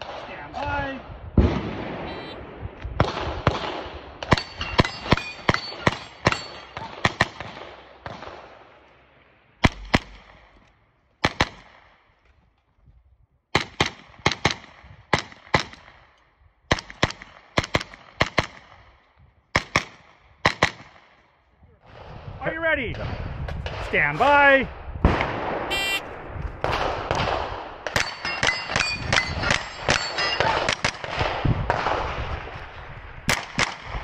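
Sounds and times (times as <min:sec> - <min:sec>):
rapid gunshots with echoes: 0:09.6 - 0:10.6, 0:11.2 - 0:12.0, 0:19.6 - 0:21.2, 0:26.6 - 0:32.6, 0:33.3 - 0:34.0.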